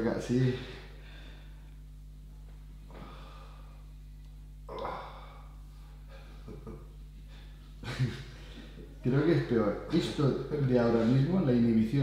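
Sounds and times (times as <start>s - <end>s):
steady low hum: 0.0s - 12.0s
faint breaths: 2.9s - 4.0s
person sighing: 4.7s - 6.4s.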